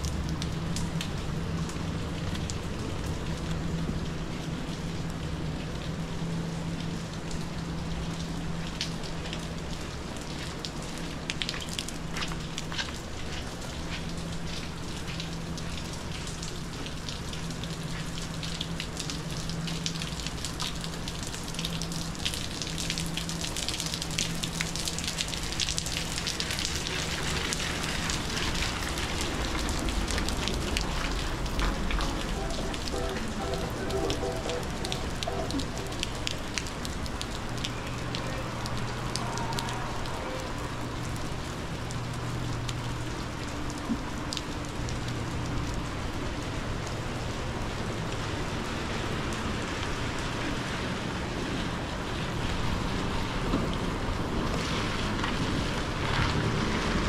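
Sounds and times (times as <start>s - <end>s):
rain falling on pavement: 0.0s - 57.0s
low steady hum: 27.8s - 37.7s
low rumble: 28.8s - 37.2s.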